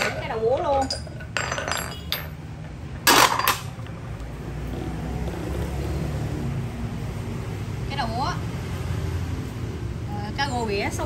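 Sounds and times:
metal hand tools clattering: 0.0 - 3.9
motor vehicle rumbling past: 4.0 - 10.2.

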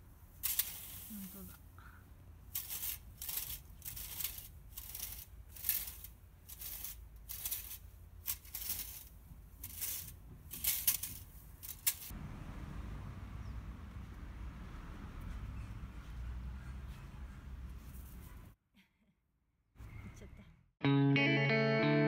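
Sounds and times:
steady outdoor hiss: 0.0 - 14.8
rake scraping through dry grass: 0.4 - 1.5, 2.5 - 12.1.

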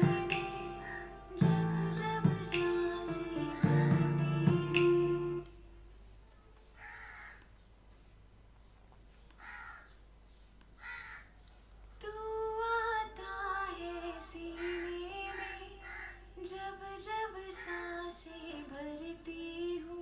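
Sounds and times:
singing with echoes: 0.0 - 5.5, 12.0 - 20.0.

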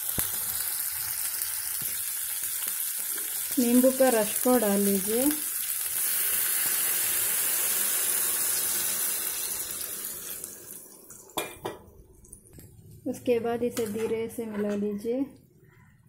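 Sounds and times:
liquid sizzling in hot oil: 0.0 - 11.8.

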